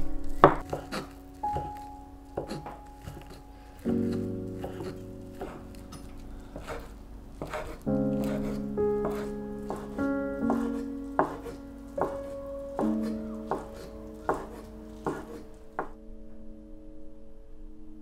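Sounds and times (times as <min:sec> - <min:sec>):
soft background music: 0:00.0 - 0:18.0
knife knocking on wooden board: 0:07.4 - 0:12.2, 0:12.8 - 0:15.9.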